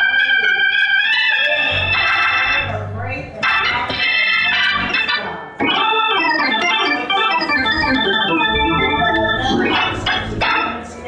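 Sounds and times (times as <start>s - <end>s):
organ playing gospel chords: 0.0s - 11.0s.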